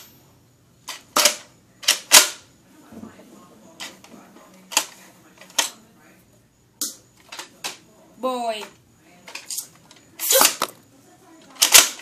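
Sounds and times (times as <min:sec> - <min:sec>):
toy dart blaster plastic clacks: 0:11.5 - 0:12.0.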